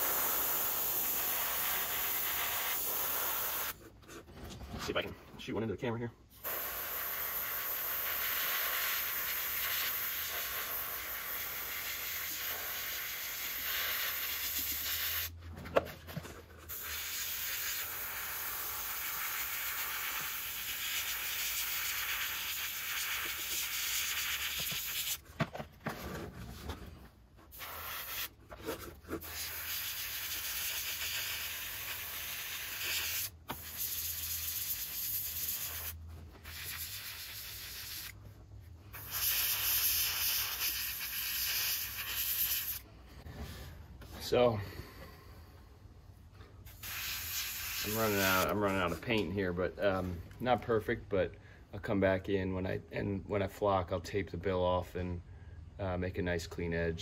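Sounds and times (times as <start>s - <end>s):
airbrush hissing: 0.0s - 3.8s, 6.4s - 15.3s, 16.7s - 25.2s, 27.5s - 28.3s, 29.2s - 38.2s, 38.9s - 42.8s, 46.7s - 48.9s.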